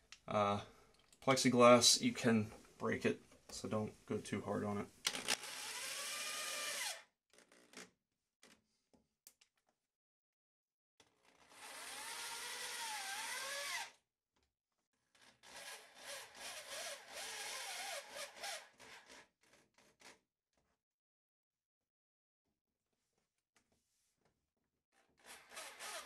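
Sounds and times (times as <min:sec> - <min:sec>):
drill motor whining: 0:05.4 - 0:07.0, 0:11.3 - 0:14.0, 0:15.4 - 0:18.8, 0:25.2 - 0:26.0.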